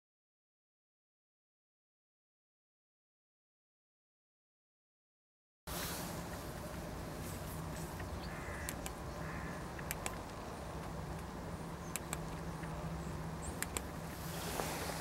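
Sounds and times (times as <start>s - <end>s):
low background hum: 5.7s - 15.0s
flashlight switch clicks: 11.9s - 12.3s.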